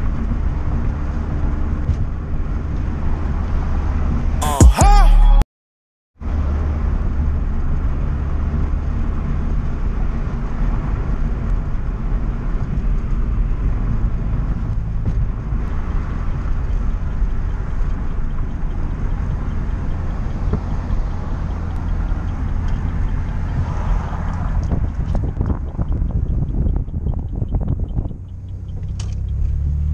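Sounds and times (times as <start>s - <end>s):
road and tyre noise: 0.0s - 4.4s, 6.2s - 29.9s
car engine drone: 6.2s - 29.9s.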